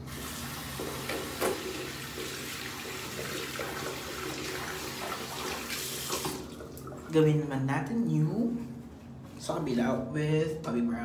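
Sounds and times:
tap water running into sink: 0:00.0 - 0:07.1.

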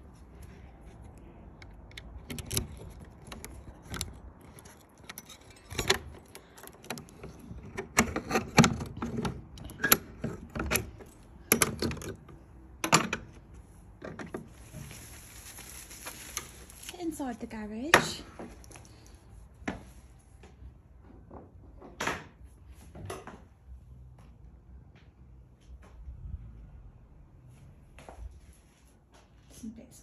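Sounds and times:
key clicking and scraping in lock: 0:01.5 - 0:13.2
keys jangling: 0:02.2 - 0:07.8.

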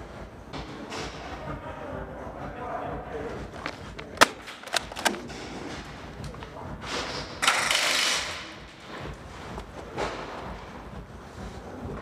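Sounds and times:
airsoft gunfire clicks and snaps: 0:04.0 - 0:05.2.

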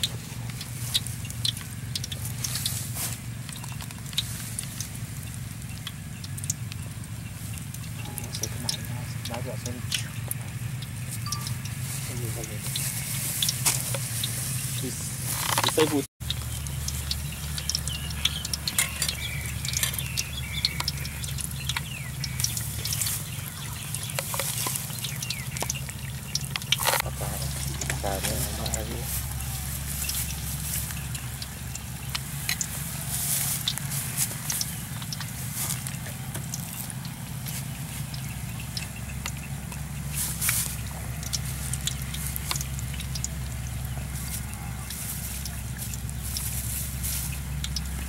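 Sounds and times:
oil crackling and popping in wok: 0:00.0 - 0:48.0
steady low hum: 0:00.0 - 0:48.0.

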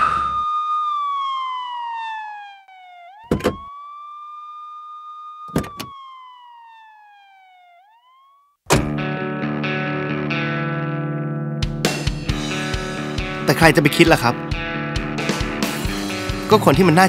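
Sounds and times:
police siren wailing: 0:00.0 - 0:08.6
car door clunks: 0:03.3 - 0:03.7, 0:05.5 - 0:05.9, 0:08.7 - 0:09.0.

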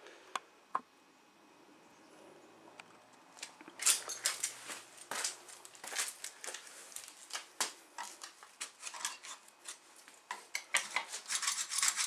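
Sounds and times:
hacksaw rasping through plastic pipe: 0:10.8 - 0:12.0.

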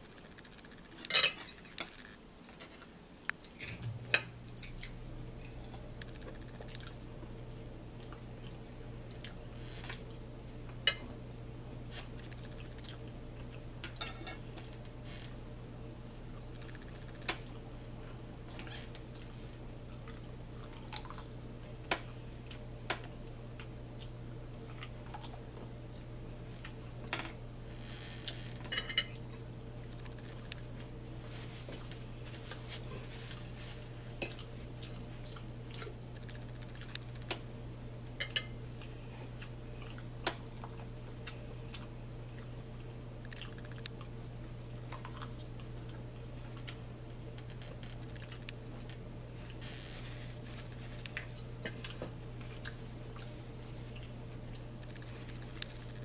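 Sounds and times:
steady low hum: 0:00.0 - 0:56.0
chewing: 0:04.5 - 0:07.1, 0:07.7 - 0:10.8, 0:11.7 - 0:14.0, 0:16.1 - 0:21.3, 0:23.6 - 0:26.8, 0:31.7 - 0:37.4, 0:38.8 - 0:49.6, 0:50.2 - 0:56.0.

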